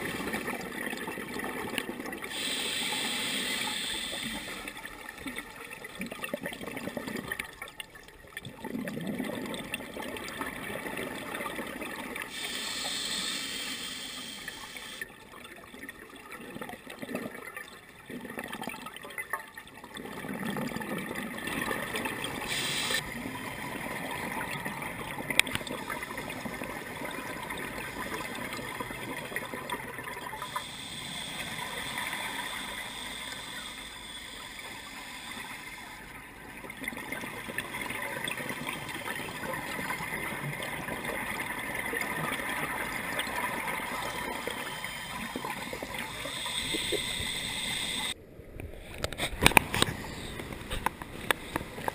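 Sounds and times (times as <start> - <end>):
exhaled bubbles gurgling: 0.0 - 48.2
hissing regulator inhalation: 2.3 - 4.8, 12.3 - 15.0, 22.4 - 23.0, 30.4 - 36.1, 43.8 - 48.2.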